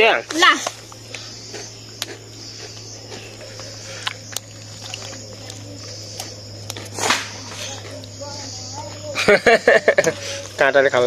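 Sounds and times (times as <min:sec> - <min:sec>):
insects trilling: 0:00.0 - 0:11.0
low steady hum: 0:00.0 - 0:11.0.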